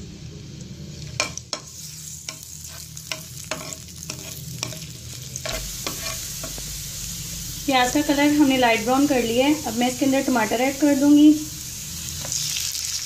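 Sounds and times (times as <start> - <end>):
onions sizzling in oil: 0.0 - 13.0
spatula scraping a pan: 1.6 - 6.6.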